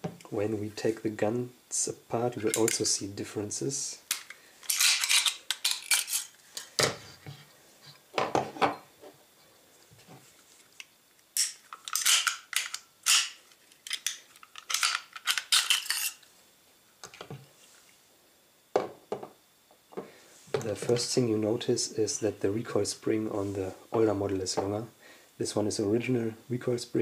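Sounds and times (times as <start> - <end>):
steel parts set on wooden table: 11.4 - 16.2.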